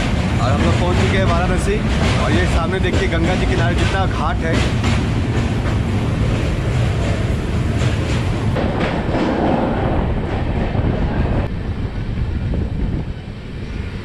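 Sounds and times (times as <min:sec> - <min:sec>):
train wheel clacks: 0:00.0 - 0:09.6
train wheels rumbling on track: 0:00.0 - 0:14.0.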